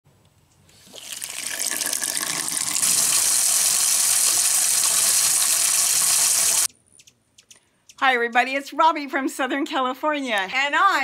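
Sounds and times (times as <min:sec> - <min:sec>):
faucet water running: 0:00.9 - 0:06.7.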